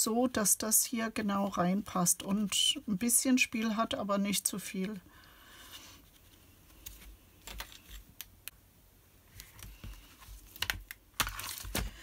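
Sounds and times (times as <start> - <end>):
paper rustling: 9.3 - 12.0.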